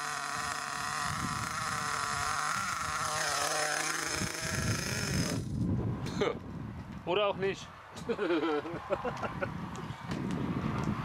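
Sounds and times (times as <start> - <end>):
small nitro engine whining: 0.0 - 5.6.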